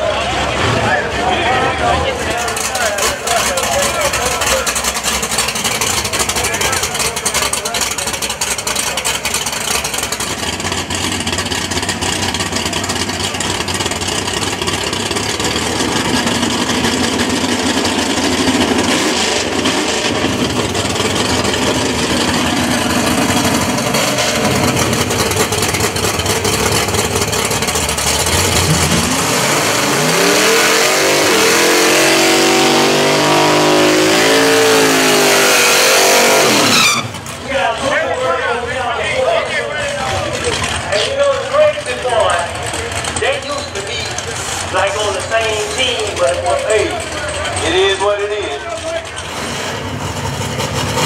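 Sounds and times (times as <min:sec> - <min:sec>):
drag race car engines running: 0:00.0 - 0:51.0
engine revving high: 0:15.4 - 0:25.1, 0:28.1 - 0:37.1.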